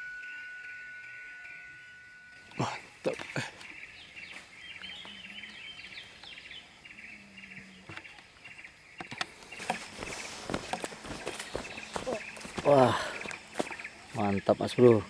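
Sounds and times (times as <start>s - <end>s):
birds chirping: 0.0s - 15.0s
footsteps rustling through grass: 9.4s - 14.0s.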